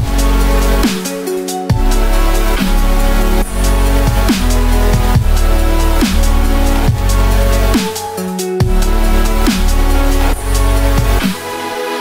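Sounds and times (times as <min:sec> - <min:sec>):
deep sustained bass: 0:00.0 - 0:00.9, 0:01.7 - 0:07.8, 0:08.6 - 0:11.2
light high percussion: 0:00.0 - 0:11.7
chillstep electronic music: 0:00.0 - 0:12.0.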